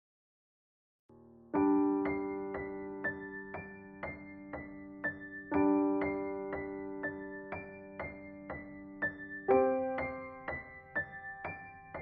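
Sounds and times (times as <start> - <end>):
piano music: 1.2 - 12.0.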